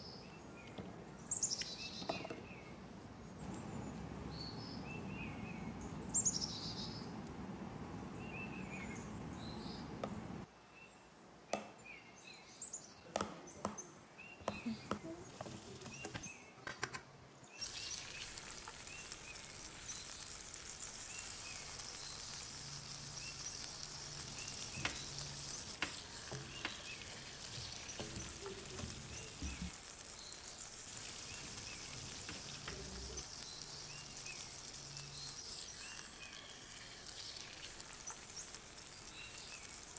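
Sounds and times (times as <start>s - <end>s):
faint birds chirping: 0.0s - 39.9s
food sizzling in a pan: 14.5s - 16.4s, 17.5s - 39.9s.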